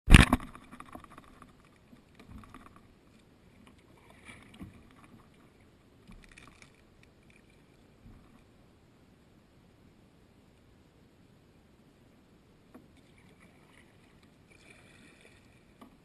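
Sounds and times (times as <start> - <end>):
paddle splashing in river: 12.7 - 16.0.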